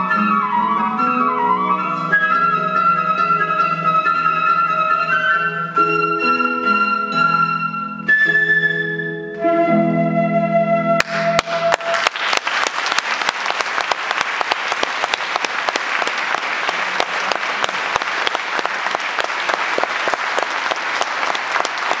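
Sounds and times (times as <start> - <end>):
audience applause: 11.0 - 22.0.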